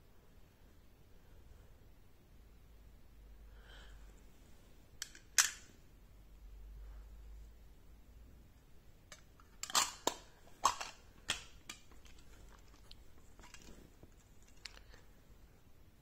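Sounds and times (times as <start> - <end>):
metal lid clicking onto tin: 9.1 - 11.8.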